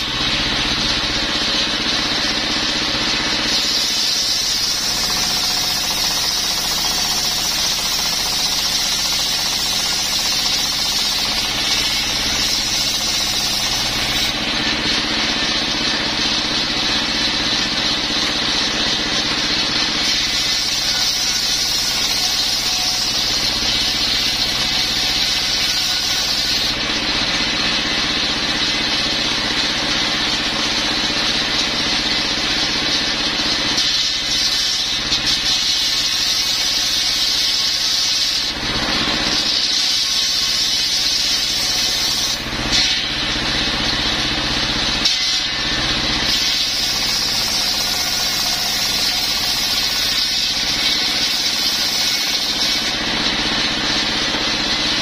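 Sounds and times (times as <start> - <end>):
saw blade cutting hiss: 0.0 - 15.4, 20.0 - 26.9, 33.8 - 38.6, 39.3 - 43.4, 46.2 - 53.0
diesel engine running: 0.0 - 20.8, 21.8 - 33.7, 42.3 - 47.8.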